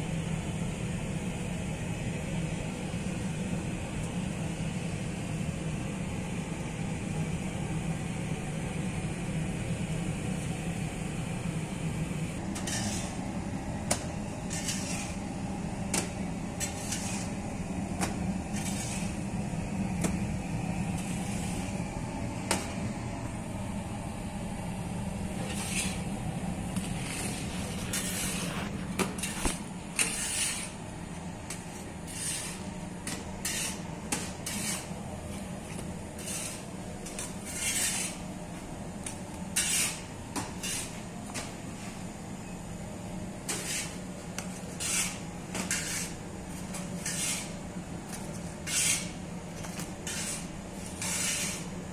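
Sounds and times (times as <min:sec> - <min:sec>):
oven humming: 0:00.0 - 0:51.9
metal spatula scraping: 0:12.6 - 0:13.2, 0:14.4 - 0:15.2, 0:16.6 - 0:17.4, 0:18.5 - 0:19.3, 0:25.4 - 0:26.0, 0:26.9 - 0:30.8, 0:32.0 - 0:34.9, 0:36.2 - 0:38.2, 0:39.6 - 0:41.0, 0:43.5 - 0:44.0, 0:44.7 - 0:47.6, 0:48.6 - 0:49.2, 0:50.0 - 0:51.7.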